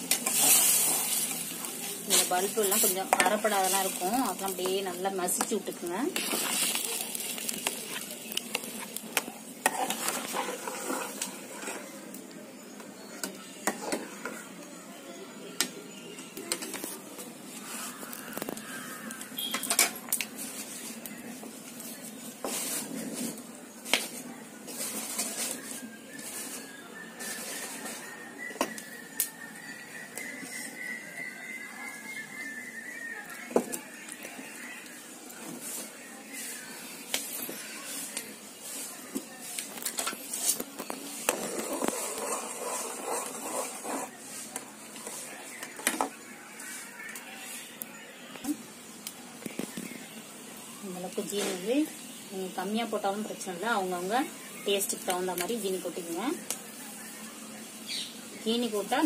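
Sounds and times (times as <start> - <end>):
ladle stirring and scraping: 0.0 - 12.2, 13.6 - 14.6, 16.5 - 32.7, 34.2 - 47.8
fire hissing and crackling: 0.0 - 12.3, 16.9 - 59.0.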